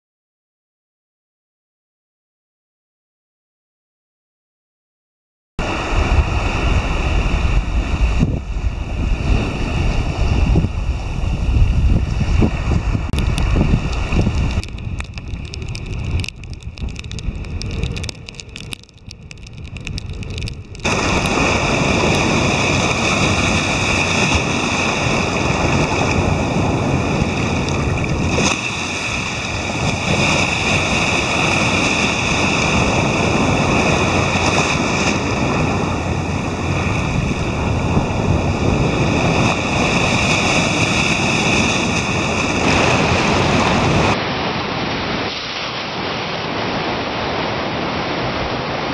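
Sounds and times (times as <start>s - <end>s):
wind buffeting microphone: 5.6s - 48.9s
surf breaking over rock: 20.0s - 47.6s.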